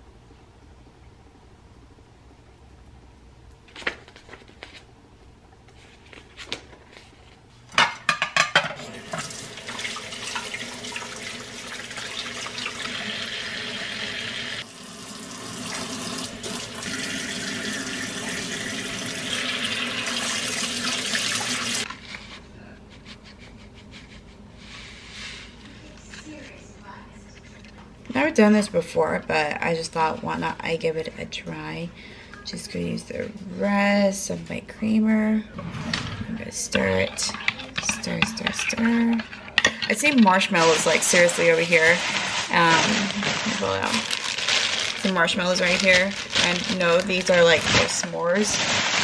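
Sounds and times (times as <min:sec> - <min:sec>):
dishes being washed: 0:07.8 - 0:21.9, 0:36.8 - 0:44.0.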